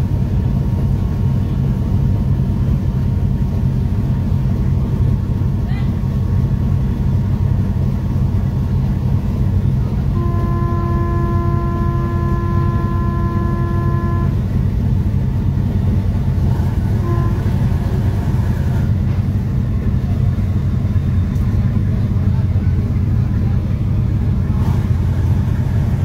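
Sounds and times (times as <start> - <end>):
boat engines rumbling: 0.0 - 26.0
ferry horn blast: 10.1 - 14.6, 16.9 - 18.9.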